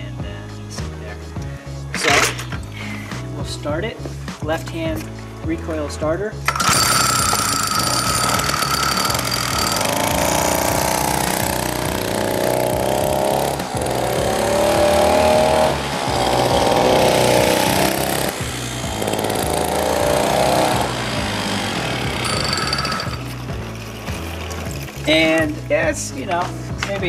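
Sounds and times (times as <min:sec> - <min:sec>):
two-stroke mini bike engine revving: 0:06.5 - 0:25.3.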